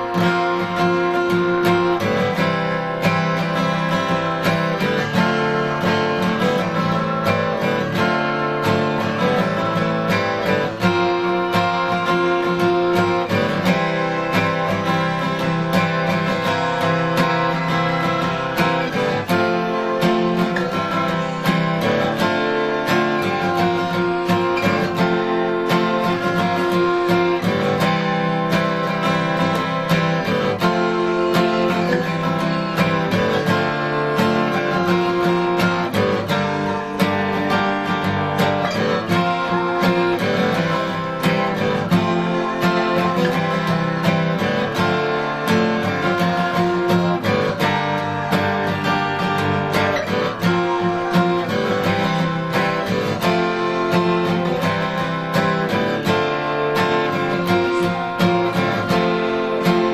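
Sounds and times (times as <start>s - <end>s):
acoustic guitar strummed: 0.0s - 59.9s.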